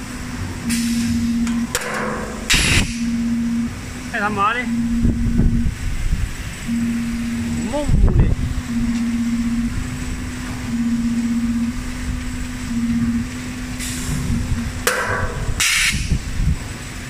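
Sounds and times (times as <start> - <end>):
machine humming: 0.0 - 15.6
pneumatic air hisses: 0.7 - 1.1, 15.6 - 16.2.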